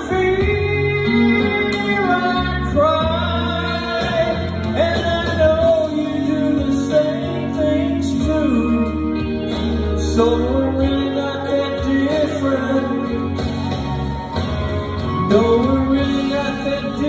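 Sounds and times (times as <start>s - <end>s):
man singing country ballad: 0.0s - 13.7s, 14.9s - 17.0s
recorded backing track: 0.0s - 17.0s.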